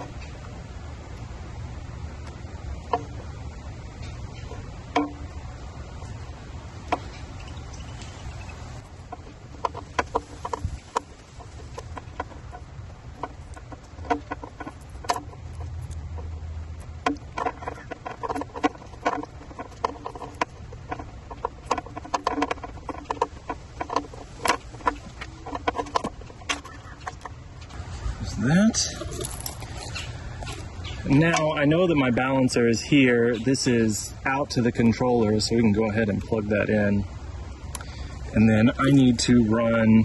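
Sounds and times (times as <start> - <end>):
bird calls: 2.8 - 16.4, 17.1 - 33.9.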